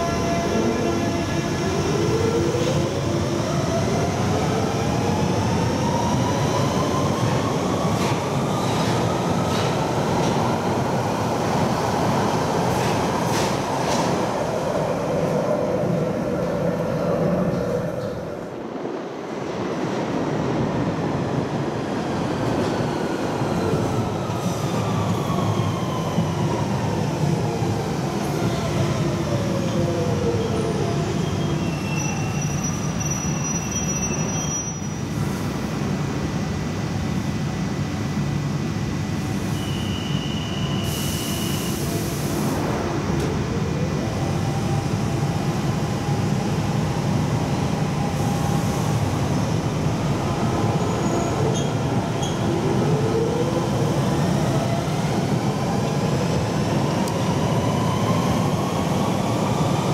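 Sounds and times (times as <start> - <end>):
air hiss: 40.8 - 42.6.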